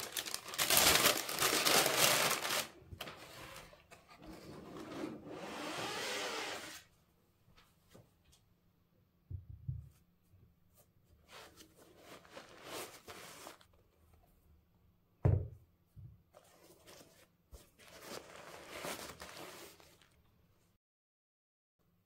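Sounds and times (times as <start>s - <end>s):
paper rustling and crinkling: 0.0s - 4.2s, 16.4s - 20.2s.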